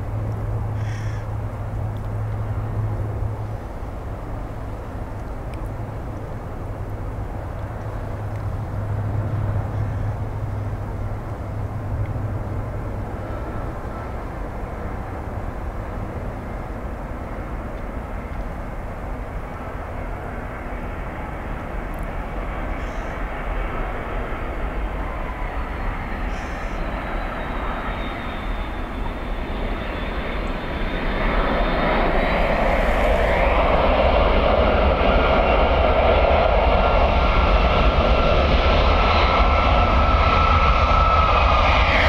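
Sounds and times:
jet engines roaring: 0.0 - 42.0
faint high whine falling in pitch: 24.9 - 33.2.

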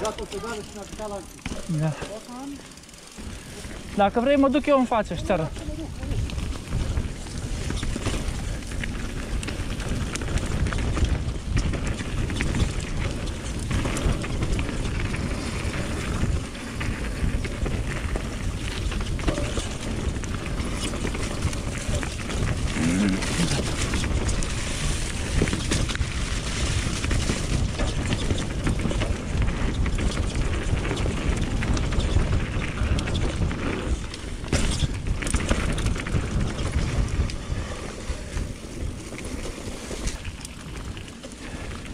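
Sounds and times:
bike knocks and rattles: 0.0 - 4.6, 5.2 - 41.9
bike tyre noise: 0.0 - 41.9
wind rushing on microphone: 5.1 - 40.2
person speaking: 22.8 - 23.8.

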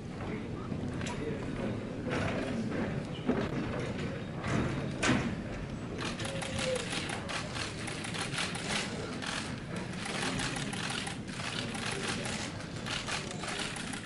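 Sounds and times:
murmur of room: 0.0 - 14.0
camera shutters clicking: 6.0 - 14.0.

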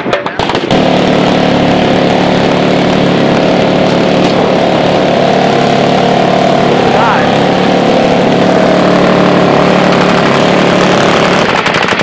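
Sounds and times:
small engine running steadily: 0.0 - 12.0.

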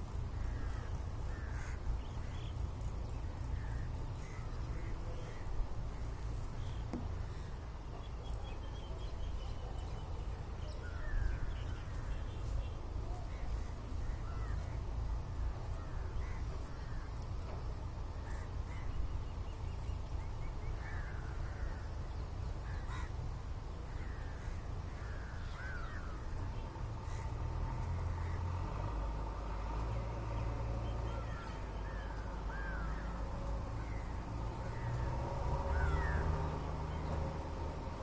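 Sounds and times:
birds chirping: 0.0 - 38.0.

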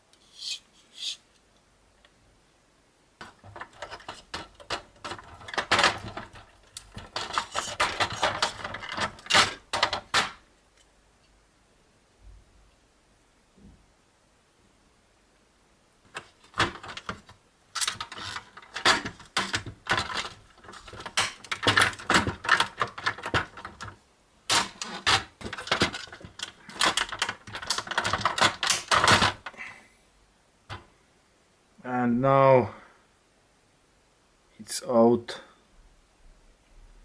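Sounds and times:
plastic parts clicking and clattering: 3.2 - 10.9, 16.1 - 29.6.

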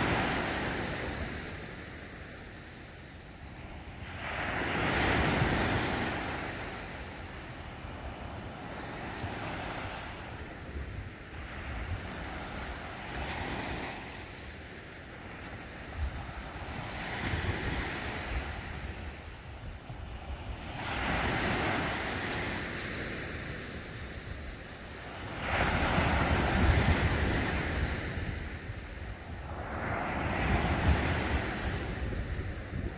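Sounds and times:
waves washing onto sandy beach: 0.0 - 32.9
wind rumble on microphone: 15.2 - 22.4, 23.2 - 32.9.

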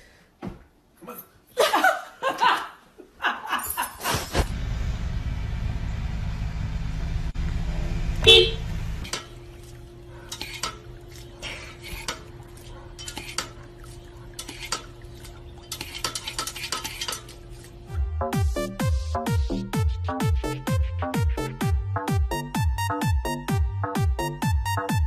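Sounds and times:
low steady rumble: 4.5 - 10.2
electronic dance music: 18.0 - 25.0.

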